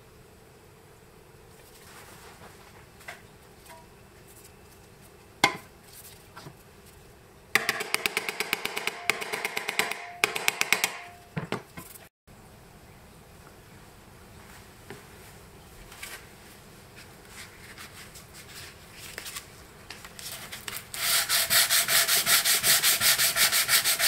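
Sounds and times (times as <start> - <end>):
hammer tapping sheet metal: 7.6 - 11.2.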